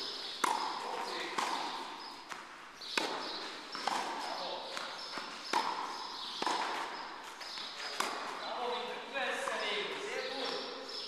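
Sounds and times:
tennis ball pops echoing: 0:00.3 - 0:08.4.

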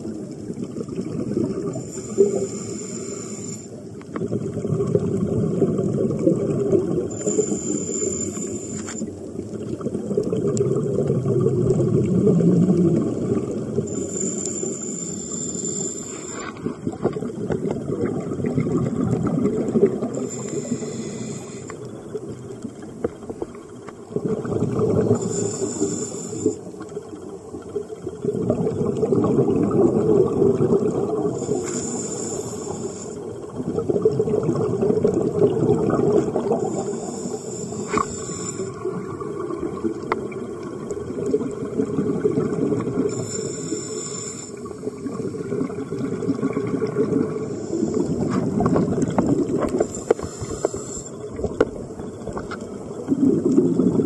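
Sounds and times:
rush of exhaled bubbles: 0:00.0 - 0:14.5, 0:15.3 - 0:54.0
regulator hissing inhale: 0:01.6 - 0:04.1, 0:07.1 - 0:09.2, 0:13.8 - 0:16.9, 0:20.0 - 0:22.1, 0:25.0 - 0:26.9, 0:31.2 - 0:33.5, 0:36.2 - 0:39.0, 0:43.1 - 0:45.4, 0:47.3 - 0:48.5, 0:49.6 - 0:51.4.

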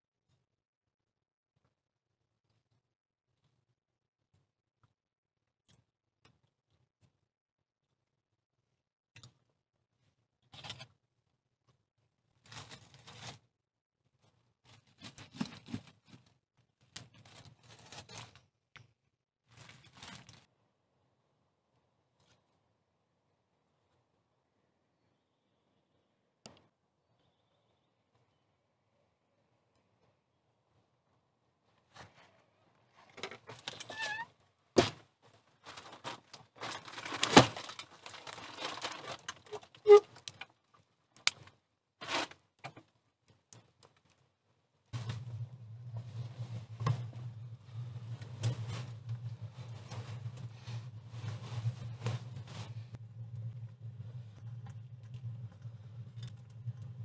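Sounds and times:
aluminium foil crinkling: 0:19.5 - 0:20.5, 0:35.6 - 0:40.5
plastic sheeting rustling: 0:35.6 - 0:40.0, 0:47.6 - 0:53.0.

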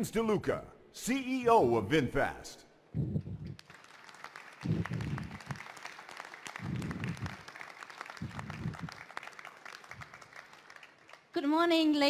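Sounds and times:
audience applauding: 0:03.5 - 0:11.4.

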